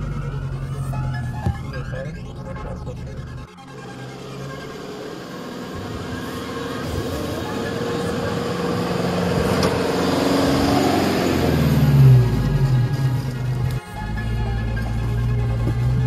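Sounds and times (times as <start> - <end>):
vehicle engine passing: 0.0 - 16.0.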